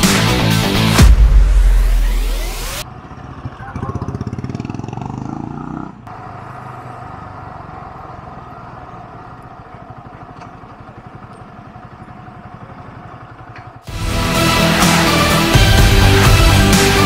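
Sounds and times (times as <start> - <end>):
motorcycle engine at low revs: 2.8 - 13.9.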